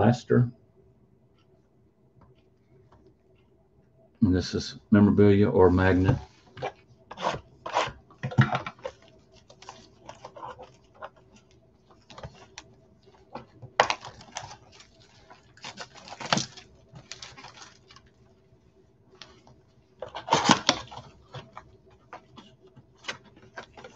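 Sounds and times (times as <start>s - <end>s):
cardboard rustling and tearing: 7.1s - 18.1s, 20.0s - 23.9s
packs crinkling: 7.1s - 18.1s, 20.0s - 23.9s.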